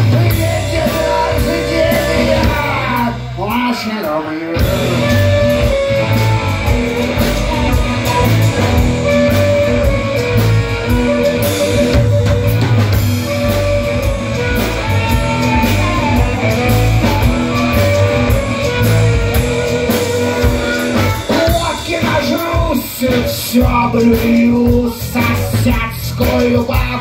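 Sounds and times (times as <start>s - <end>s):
drum kit: 0.0s - 27.0s
electric guitars: 0.0s - 27.0s
harmonica playing held notes: 4.6s - 22.5s.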